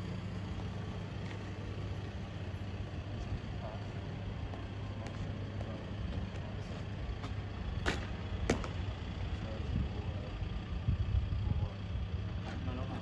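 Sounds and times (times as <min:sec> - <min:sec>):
steady low rumble: 0:00.0 - 0:12.8.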